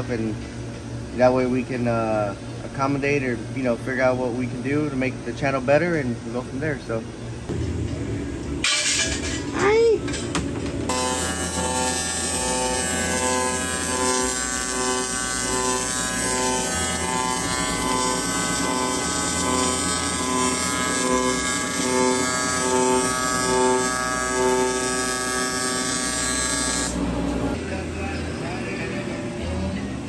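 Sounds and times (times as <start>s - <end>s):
welding arc buzzing: 10.9s - 27.6s.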